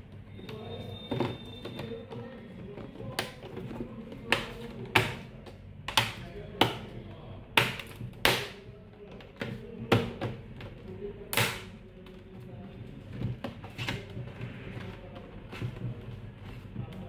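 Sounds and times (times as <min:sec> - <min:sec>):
plastic parts snapping into place: 0:04.3 - 0:06.8.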